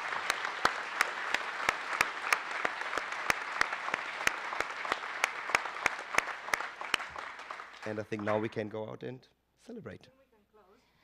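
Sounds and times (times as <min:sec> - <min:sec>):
audience applauding: 0:00.0 - 0:08.8
sharp claps close to microphone: 0:00.0 - 0:08.8.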